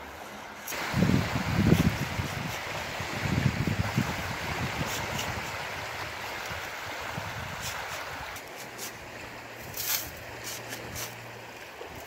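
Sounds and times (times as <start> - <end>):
waves lapping around boulders: 0.0 - 12.0
wind buffeting microphone: 0.7 - 8.4.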